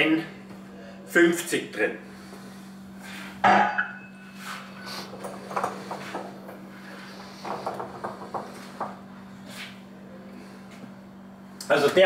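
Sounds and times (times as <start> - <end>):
steady low hum: 0.0 - 12.0
refrigerator cabinet knocks and clatter: 7.4 - 9.0.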